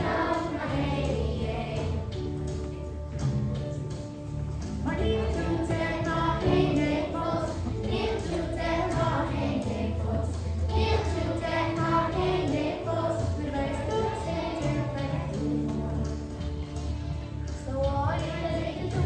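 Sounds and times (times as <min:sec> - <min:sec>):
children singing in unison: 0:00.0 - 0:02.5, 0:05.1 - 0:16.9, 0:18.0 - 0:19.0
musical accompaniment with bass: 0:00.0 - 0:19.0.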